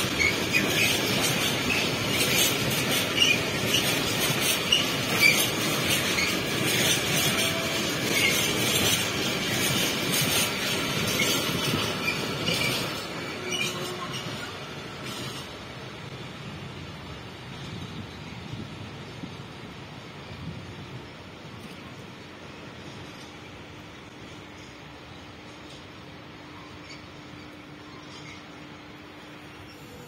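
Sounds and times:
high wheel squeals: 0:00.0 - 0:15.6, 0:26.4 - 0:30.0
train wheels on rails: 0:00.0 - 0:30.0.

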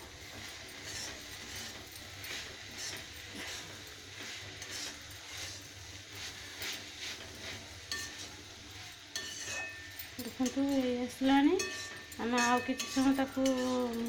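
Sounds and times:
metal spatula scraping a pan: 0:00.5 - 0:14.0
spatula clinking against pan: 0:07.9 - 0:08.3, 0:09.1 - 0:14.0.

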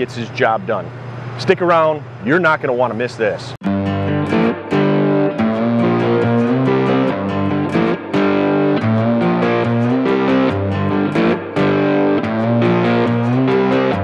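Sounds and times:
distorted electric guitar chords: 0:03.6 - 0:14.0.

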